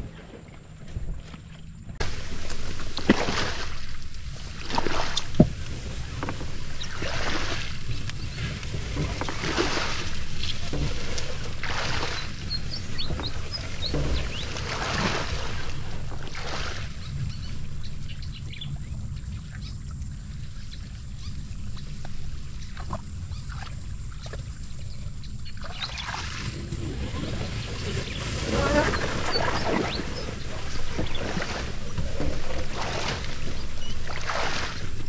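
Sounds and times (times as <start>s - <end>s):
kayak hull brushing through grass: 0.0s - 35.0s
low steady rumble: 0.0s - 35.0s
water splashing and sloshing: 0.0s - 35.0s.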